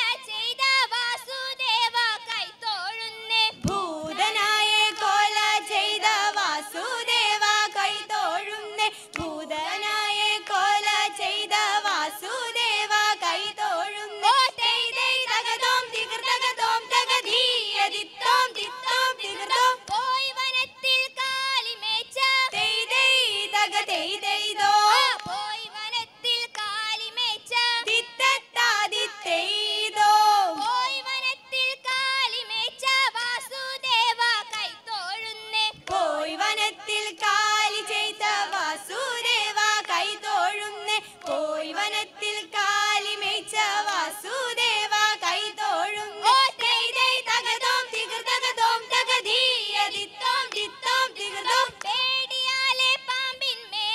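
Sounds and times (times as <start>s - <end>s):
women singing together: 0.0s - 53.9s.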